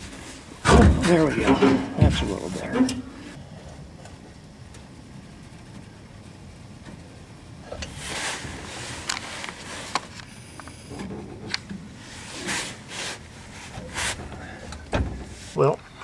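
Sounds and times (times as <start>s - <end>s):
metal scraping: 0.2s - 3.4s.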